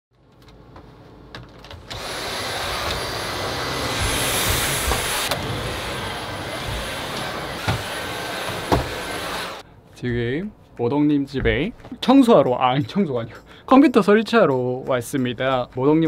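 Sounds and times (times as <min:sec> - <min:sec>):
handheld vacuum cleaner whining: 0:01.9 - 0:09.6.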